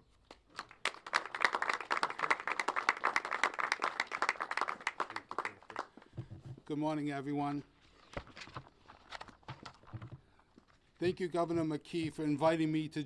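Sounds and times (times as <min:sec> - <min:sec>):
crowd applauding: 0:00.5 - 0:06.0.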